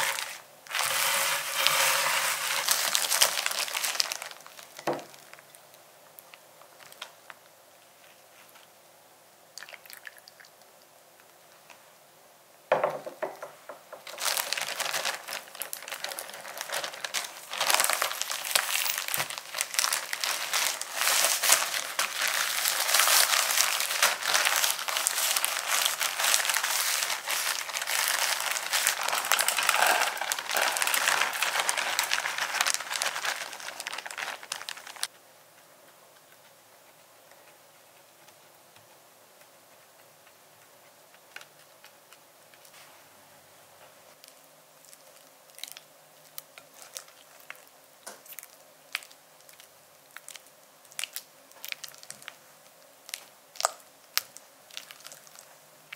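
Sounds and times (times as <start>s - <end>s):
plastic bag crinkling: 0.0s - 5.7s, 6.7s - 7.4s, 13.9s - 35.1s, 53.1s - 55.4s.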